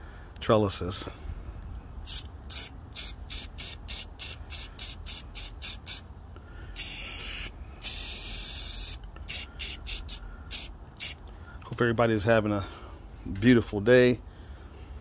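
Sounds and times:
spray paint can hissing: 0:02.1 - 0:06.0, 0:06.8 - 0:11.2.

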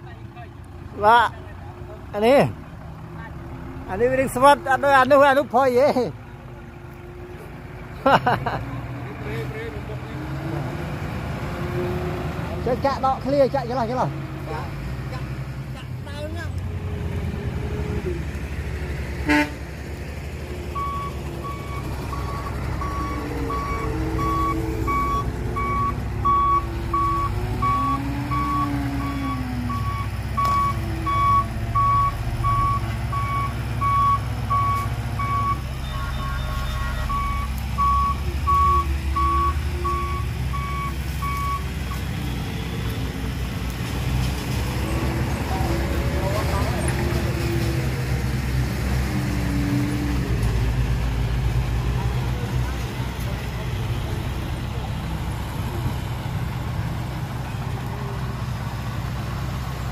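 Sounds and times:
low engine rumble: 0:00.0 - 0:59.9
vehicle reversing alarm beeping: 0:20.7 - 0:43.2.

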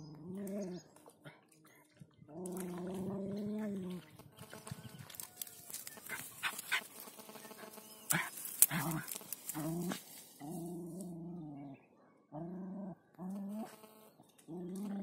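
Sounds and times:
dog growling whines: 0:00.0 - 0:00.9, 0:02.3 - 0:04.0, 0:09.6 - 0:13.7.

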